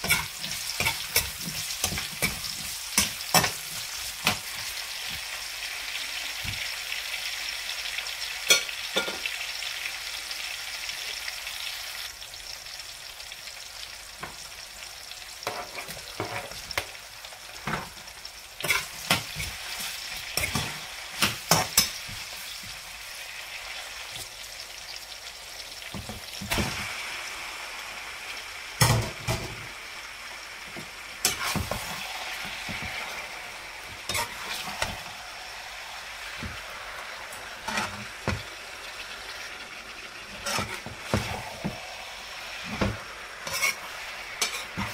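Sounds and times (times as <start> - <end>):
metal spoon scraping a pan: 0.0 - 4.8, 15.4 - 16.8, 18.6 - 22.7, 31.2 - 33.2, 34.0 - 35.1, 37.5 - 38.4, 40.3 - 41.8, 42.7 - 44.9
vegetables sizzling in hot oil: 0.0 - 44.9.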